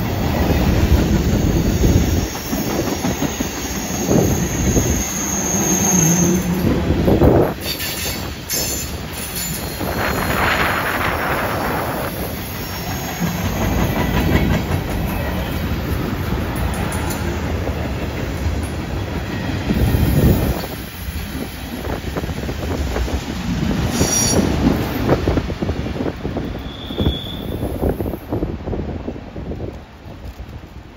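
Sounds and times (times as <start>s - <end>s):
train wheels rumbling on rail: 0.0s - 30.9s
high wheel squeals: 1.1s - 6.8s, 23.9s - 24.6s, 26.5s - 28.0s
wheels clicking over rail joints: 6.4s - 21.8s.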